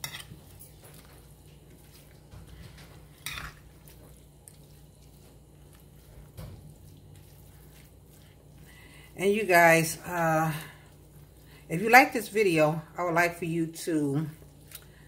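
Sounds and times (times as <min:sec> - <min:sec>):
metal spoon stirring in a pan: 0:00.0 - 0:09.0.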